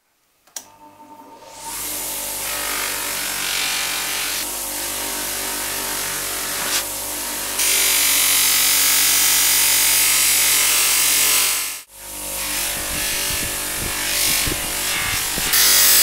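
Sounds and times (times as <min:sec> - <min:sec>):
electric motor humming: 0:01.2 - 0:16.0.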